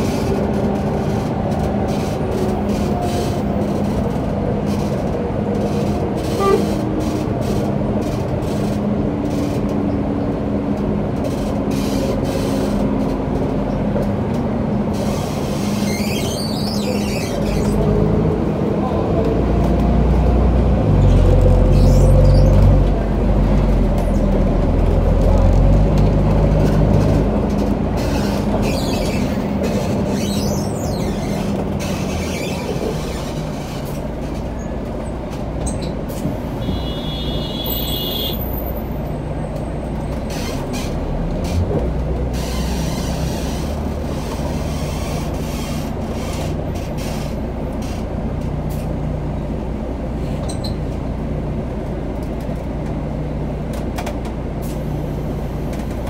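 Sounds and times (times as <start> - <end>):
bus engine drone: 0.0 - 56.0
road noise: 0.0 - 56.0
high squeal: 15.2 - 17.8.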